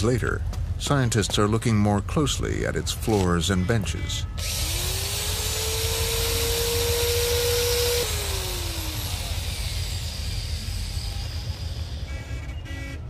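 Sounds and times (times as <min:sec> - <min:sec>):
electric drill whining and grinding: 0:04.4 - 0:12.4.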